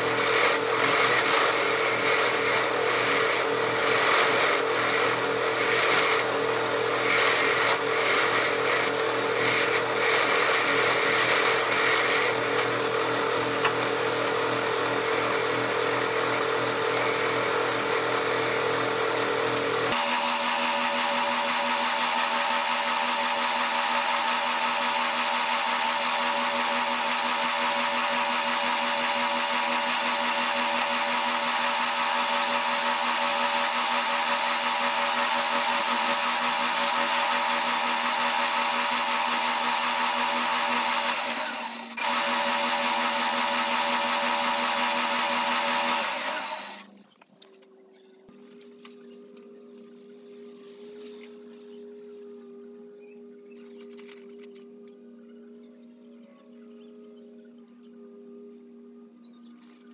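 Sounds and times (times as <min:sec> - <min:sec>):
lathe running: 0:00.0 - 0:46.9
chisel cutting spinning wood: 0:00.0 - 0:47.0.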